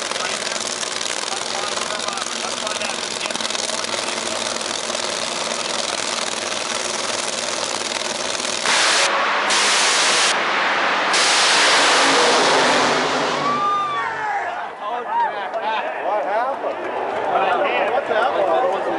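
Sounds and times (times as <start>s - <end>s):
drag racing engines roaring: 0.0s - 14.8s.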